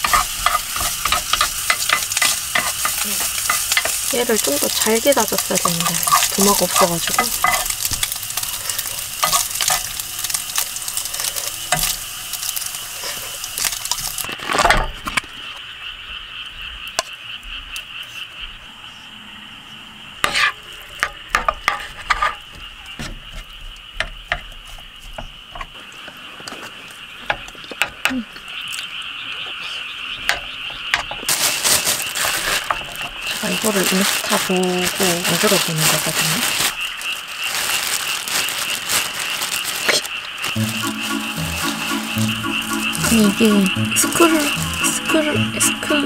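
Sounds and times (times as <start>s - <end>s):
wooden spatula scraping a pan: 0.0s - 10.0s, 20.3s - 20.6s, 21.7s - 22.4s
food sizzling in a frying pan: 0.0s - 14.4s, 31.3s - 46.0s
steady high-pitched chorus: 40.5s - 46.0s.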